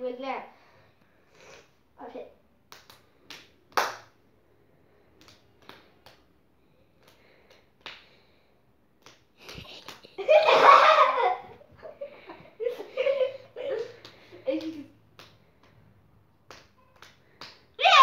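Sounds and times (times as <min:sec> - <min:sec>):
children laughing: 0:09.6 - 0:15.0.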